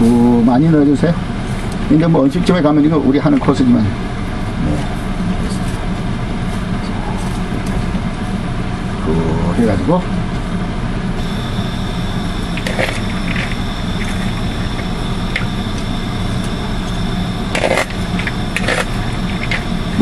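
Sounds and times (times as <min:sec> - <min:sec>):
steady mechanical hum: 0:00.0 - 0:20.0
faint high whine: 0:11.2 - 0:20.0.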